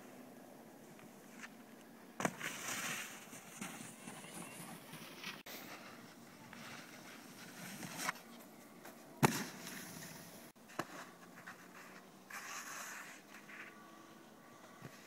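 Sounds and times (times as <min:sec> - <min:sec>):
snowboard scraping over snow: 0:02.2 - 0:08.3, 0:09.3 - 0:13.8.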